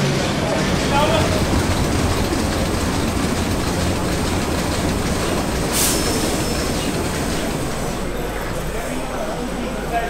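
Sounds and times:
diesel engine running: 0:00.0 - 0:09.1
short sharp hiss: 0:05.7 - 0:06.3.

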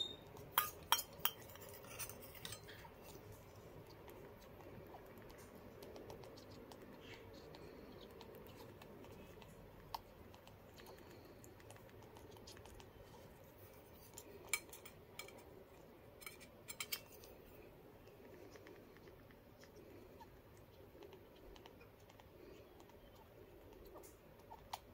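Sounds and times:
spoon clicking on metal bowl: 0:00.1 - 0:02.6.

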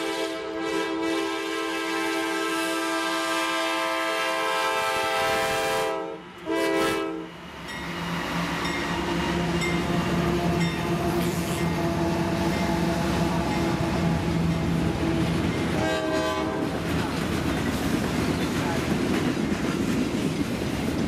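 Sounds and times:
locomotive air horn: 0:00.0 - 0:07.4, 0:10.3 - 0:16.8
locomotive engines and wheels rumbling: 0:07.3 - 0:21.0.

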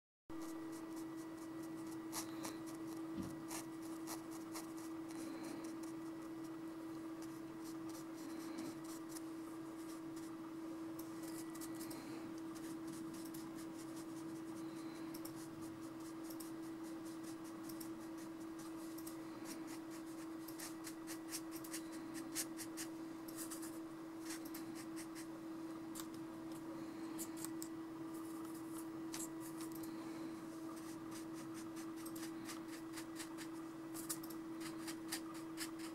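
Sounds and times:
faint steady hum: 0:00.3 - 0:35.9
dry brush scratching paper: 0:00.4 - 0:06.6, 0:07.2 - 0:10.4, 0:12.5 - 0:25.3, 0:30.7 - 0:35.9.

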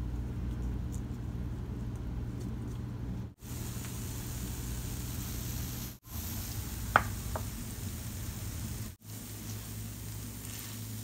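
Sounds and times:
food sizzling in oil: 0:03.4 - 0:11.0.

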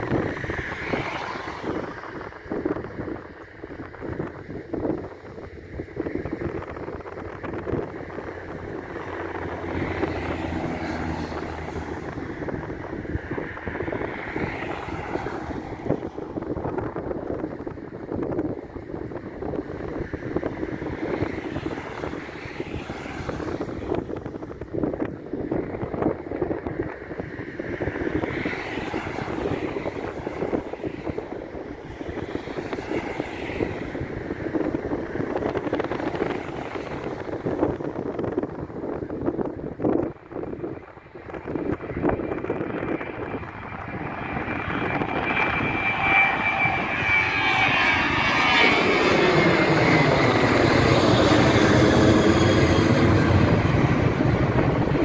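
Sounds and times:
distant jet engine rumble: 0:00.0 - 0:55.0
wind buffeting microphone: 0:00.0 - 0:55.0
car passing by: 0:00.4 - 0:02.0, 0:09.2 - 0:12.6, 0:13.4 - 0:16.2, 0:21.1 - 0:24.0, 0:28.2 - 0:31.2, 0:31.9 - 0:34.7, 0:35.4 - 0:37.7.

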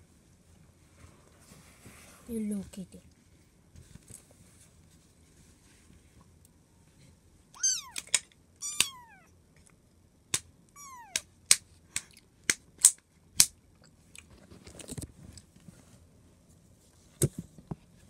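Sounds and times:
kitten meowing: 0:07.6 - 0:09.3, 0:10.7 - 0:11.3.

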